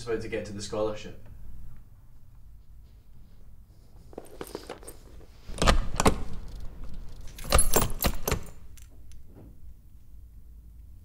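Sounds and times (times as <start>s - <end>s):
keys jangling and clinking: 4.0s - 9.3s.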